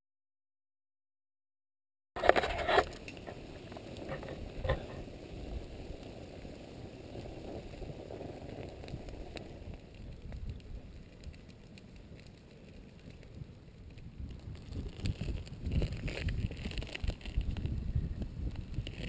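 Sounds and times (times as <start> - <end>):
lava crackling and ticking: 2.3 - 19.0.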